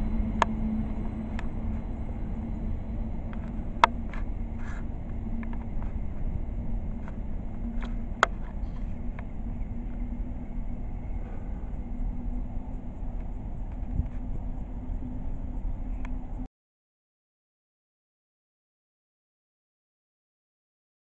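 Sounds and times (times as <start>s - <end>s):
freight train wagons rolling: 0.0s - 16.4s
faint low hum: 0.0s - 16.5s.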